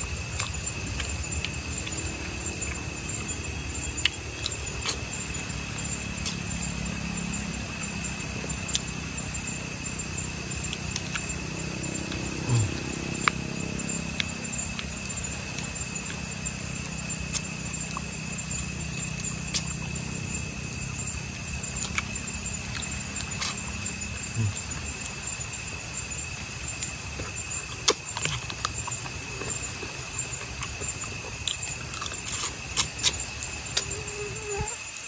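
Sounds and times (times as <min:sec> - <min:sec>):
high insect drone: 0:00.0 - 0:35.0
person eating with small clicks: 0:00.2 - 0:02.8, 0:04.0 - 0:06.9, 0:10.6 - 0:13.4, 0:14.1 - 0:16.2, 0:16.8 - 0:19.9, 0:21.8 - 0:25.2, 0:27.2 - 0:34.0.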